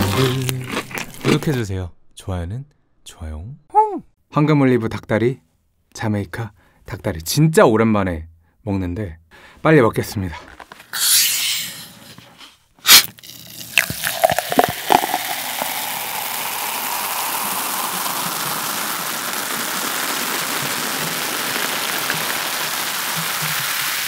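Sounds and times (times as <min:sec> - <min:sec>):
bottle opening hiss: 0:10.9 - 0:12.2, 0:12.8 - 0:24.0
cola pouring and fizzing: 0:13.0 - 0:24.0.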